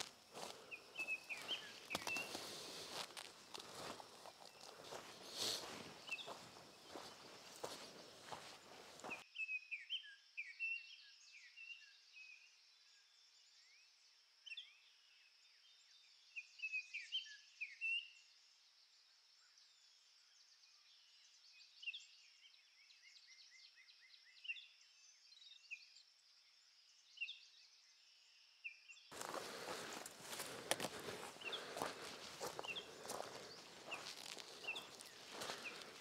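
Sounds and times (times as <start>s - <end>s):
small birds chirping: 0.0s - 9.2s, 29.1s - 36.0s.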